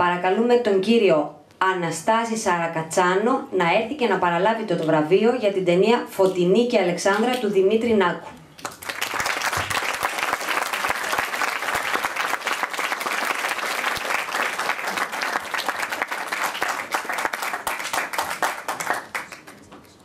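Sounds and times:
audience applauding: 0:08.6 - 0:19.7.

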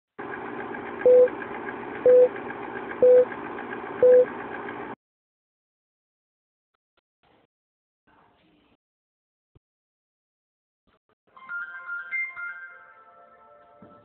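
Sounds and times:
short beeps: 0:01.1 - 0:01.3, 0:03.0 - 0:03.3, 0:04.0 - 0:04.3.

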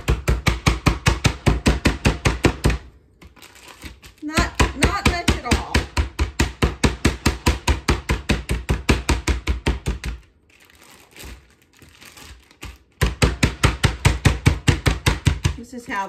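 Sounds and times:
meat mallet pounding: 0:00.0 - 0:02.9, 0:04.2 - 0:10.3, 0:12.6 - 0:15.7.

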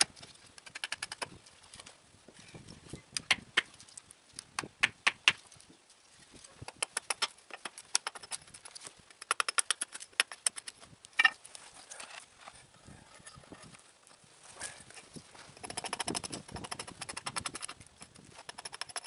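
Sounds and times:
hatchet chopping wood: 0:00.6 - 0:01.4, 0:04.6 - 0:05.4, 0:06.6 - 0:08.4, 0:09.2 - 0:10.7, 0:15.6 - 0:19.0.

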